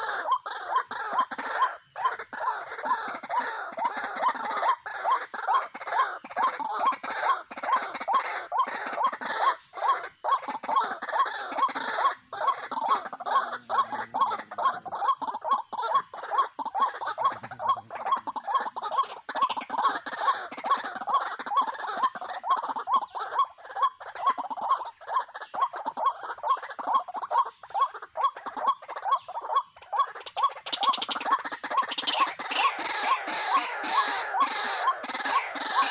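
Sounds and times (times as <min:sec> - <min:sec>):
bird calling short repeated notes: 0:31.8 - 0:35.9.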